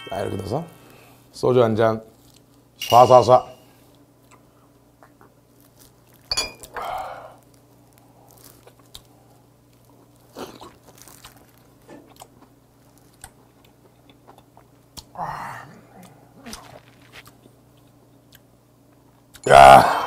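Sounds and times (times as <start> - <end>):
glass clinking: 2.8 - 3.6, 6.3 - 6.7
person breathing out: 6.7 - 7.4.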